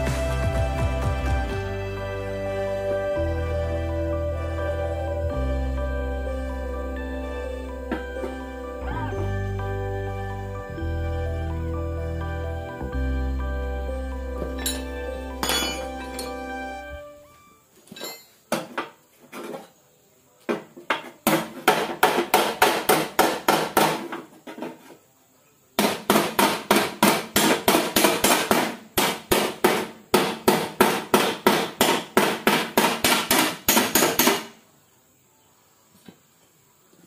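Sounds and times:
hammer on metal panel: 21.2 - 24.2, 25.8 - 34.6.

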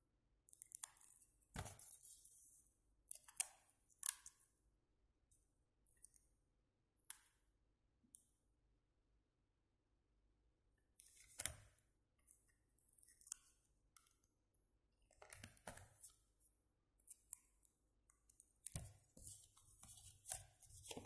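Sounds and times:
paper and tape crinkling: 19.2 - 21.0.

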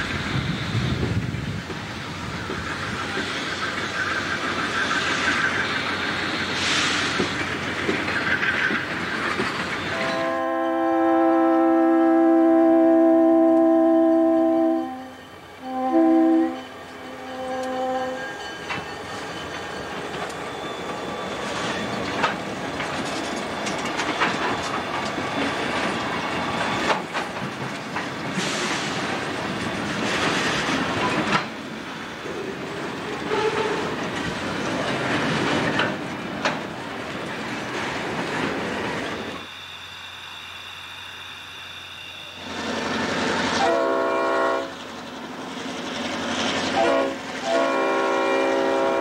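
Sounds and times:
train wheels rumbling: 0.0 - 49.0
locomotive horn chord: 9.9 - 18.2, 43.6 - 44.7, 46.8 - 49.0
clanks over rail joints: 21.5 - 31.6, 33.0 - 38.6.

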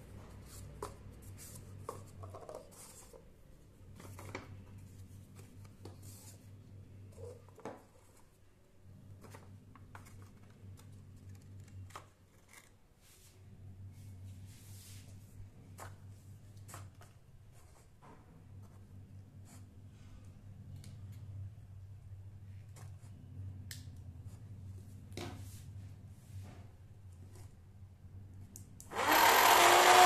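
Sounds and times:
paper cups handled on table: 0.2 - 3.3.

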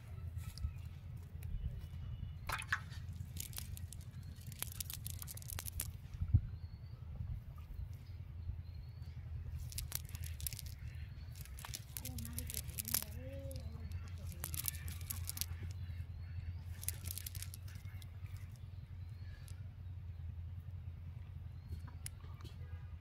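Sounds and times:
steady low rumble: 0.0 - 23.0
small clicks: 2.5 - 6.0, 9.6 - 15.8, 16.7 - 18.6
net mesh rustling and crackling: 3.1 - 6.0, 9.6 - 15.8, 16.7 - 18.6.

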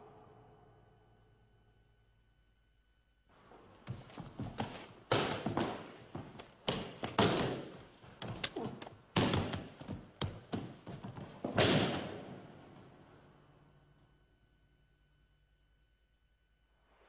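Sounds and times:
bodies thudding on mats: 3.8 - 12.9.

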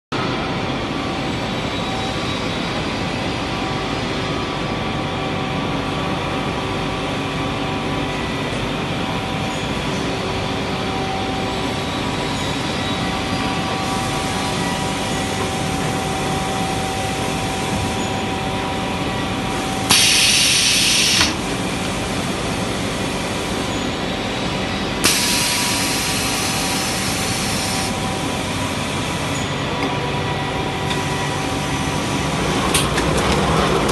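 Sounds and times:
loud hiss: 19.5 - 23.7, 25.0 - 29.4.

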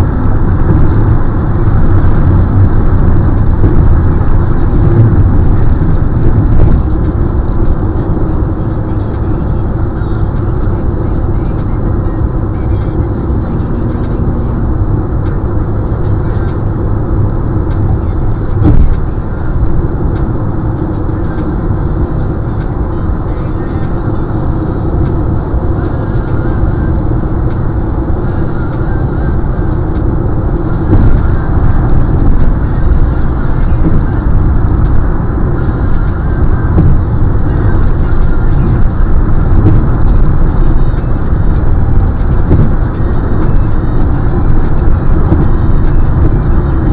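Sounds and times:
car road and engine noise: 0.0 - 46.9
thump: 18.6 - 19.0.

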